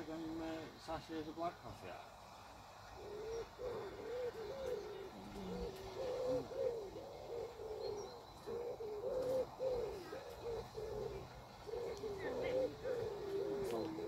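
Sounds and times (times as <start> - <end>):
pigeon cooing: 2.9 - 14.0.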